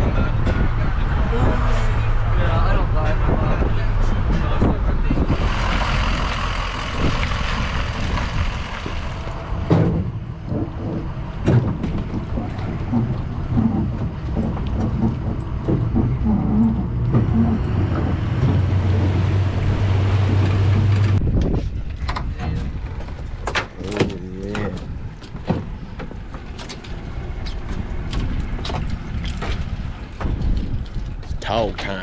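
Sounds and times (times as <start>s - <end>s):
boat engine humming: 0.0s - 21.9s, 22.6s - 32.0s
wind on microphone: 0.0s - 23.4s, 24.0s - 32.0s
sharp knocks: 9.6s - 19.5s.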